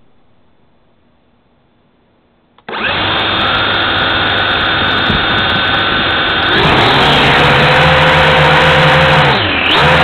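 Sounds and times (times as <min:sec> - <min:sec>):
drone motors whining: 0:02.6 - 0:10.0.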